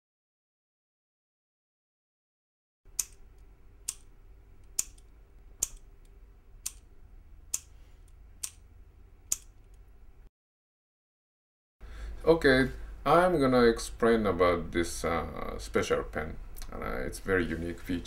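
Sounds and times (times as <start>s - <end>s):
faint room hum: 2.9s - 10.3s, 11.8s - 18.0s.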